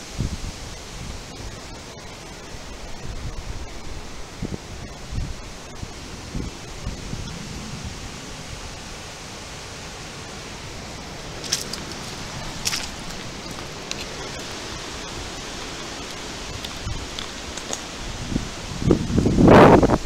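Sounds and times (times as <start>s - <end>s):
storm wind through trees: 0.0s - 20.0s
sharp crackles: 10.6s - 18.3s.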